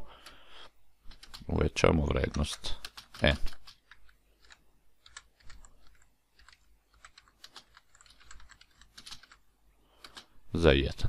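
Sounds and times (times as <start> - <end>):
typing on computer keyboard: 1.1 - 1.5, 2.2 - 9.4, 10.0 - 10.3.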